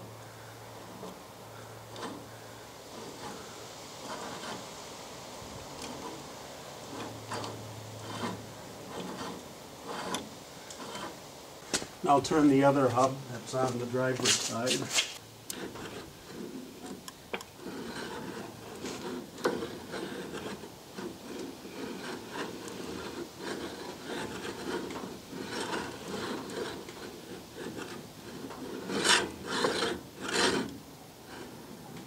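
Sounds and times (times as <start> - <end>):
gears scraping and grinding: 0.8 - 1.2, 1.9 - 4.8, 5.5 - 32.0.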